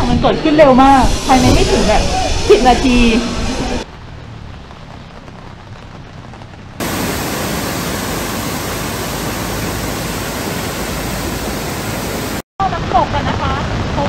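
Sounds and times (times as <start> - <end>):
light rain falling: 3.7 - 14.0
waterfall rushing: 6.8 - 12.4.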